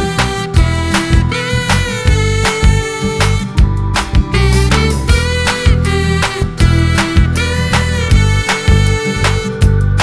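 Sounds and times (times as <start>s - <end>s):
pitched instruments: 0.0s - 9.8s
regular drum hits: 2.0s - 9.4s.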